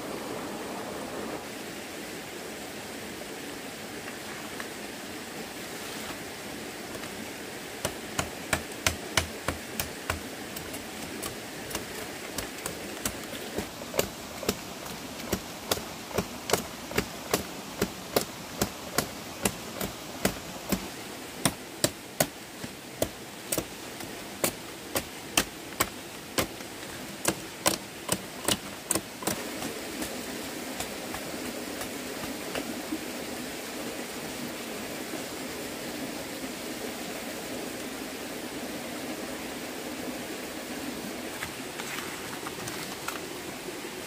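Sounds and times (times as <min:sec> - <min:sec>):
steady rushing noise: 0:05.4 - 0:36.6.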